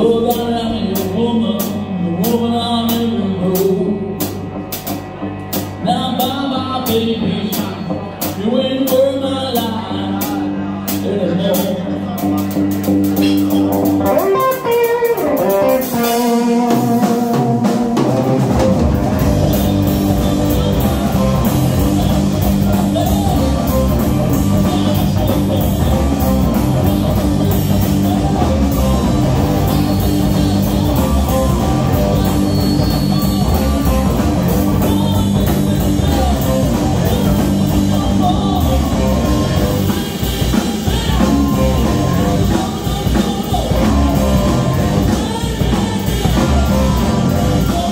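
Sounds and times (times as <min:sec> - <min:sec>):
drum kit: 0:00.0 - 0:47.9
electric bass: 0:00.0 - 0:47.9
electric guitar: 0:00.0 - 0:47.9
amplified harmonica: 0:13.6 - 0:40.1.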